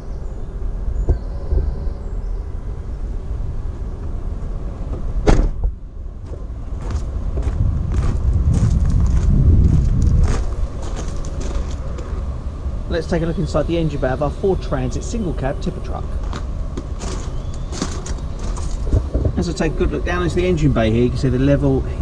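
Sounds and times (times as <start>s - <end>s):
wind rumbling on microphone: 0.0s - 22.0s
van door slamming: 5.0s - 5.8s
footsteps on gravel: 6.2s - 12.2s, 16.1s - 19.1s.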